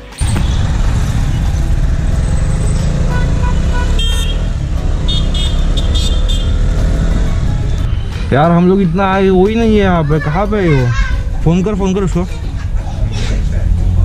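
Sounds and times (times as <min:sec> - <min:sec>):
motorcycle engine and road rumble: 0:00.2 - 0:09.6
vehicle horns tooting: 0:03.0 - 0:06.8.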